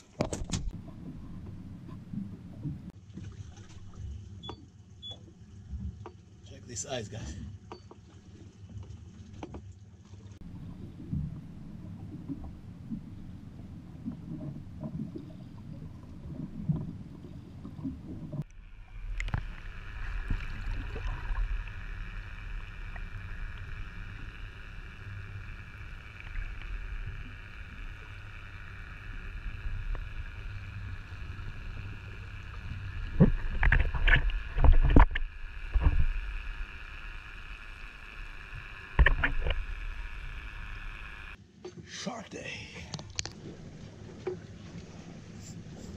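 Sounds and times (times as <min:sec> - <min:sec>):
underwater low rumble: 0:00.0 - 0:06.4, 0:07.3 - 0:41.6, 0:42.9 - 0:45.9
steady high hum: 0:10.4 - 0:45.9.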